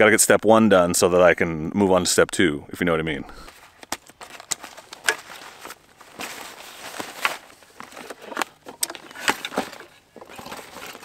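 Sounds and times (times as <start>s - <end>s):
camping gear clicks and knocks: 3.4s - 11.0s
rustling of gear: 3.4s - 11.0s.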